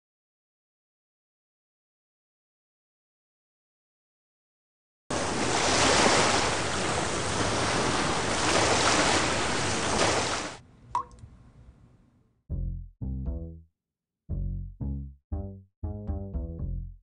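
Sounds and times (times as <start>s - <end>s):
water rushing and splashing: 5.1s - 10.6s
water drop plink: 10.9s - 11.2s.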